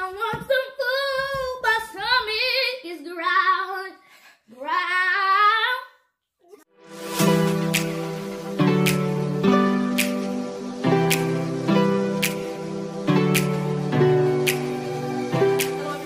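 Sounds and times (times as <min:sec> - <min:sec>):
boy singing: 0:00.0 - 0:06.6, 0:15.7 - 0:16.0
instrumental background music: 0:06.8 - 0:16.0.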